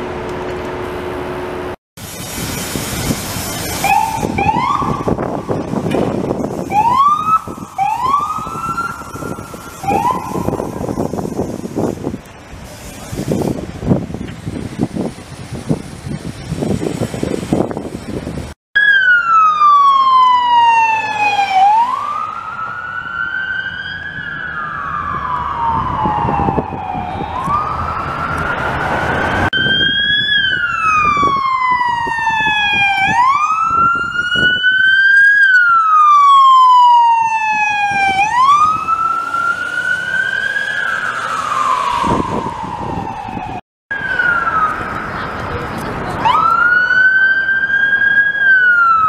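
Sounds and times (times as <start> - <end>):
police siren wailing: 3.8 - 11.7, 18.8 - 45.6, 46.2 - 49.0.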